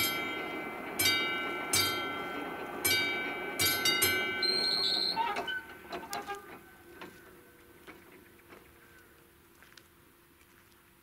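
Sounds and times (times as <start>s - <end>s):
level crossing bell ringing: 0.0s - 5.1s.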